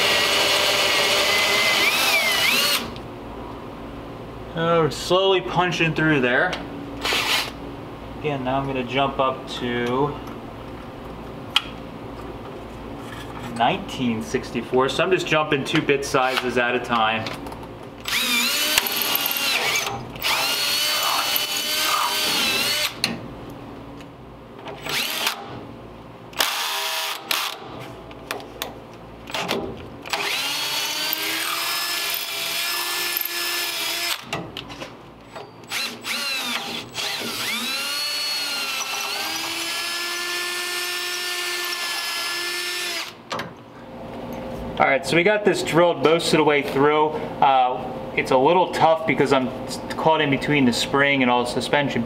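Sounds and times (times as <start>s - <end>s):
cordless drill drilling metal: 0.0s - 3.0s, 7.0s - 7.6s, 18.0s - 23.0s, 24.8s - 25.5s, 26.4s - 27.6s, 30.1s - 34.3s, 35.6s - 43.2s.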